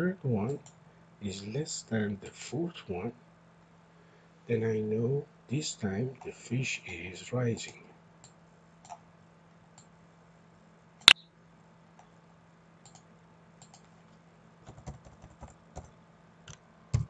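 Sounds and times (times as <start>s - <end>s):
faint steady hum: 0.0s - 17.0s
computer keyboard clicks: 12.8s - 13.9s, 14.7s - 15.9s.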